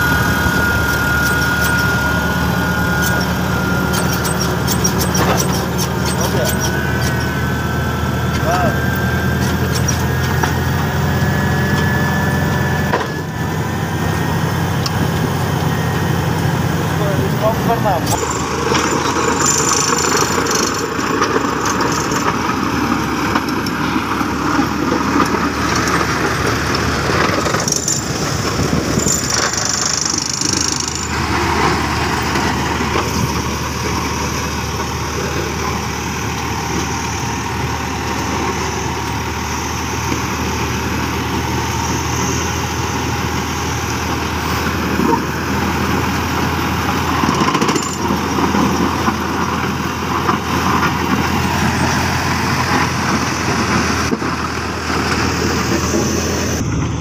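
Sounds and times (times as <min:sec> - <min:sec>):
diesel engine running: 0:00.0 - 0:57.0
blade scraping soil and gravel: 0:03.0 - 0:07.3.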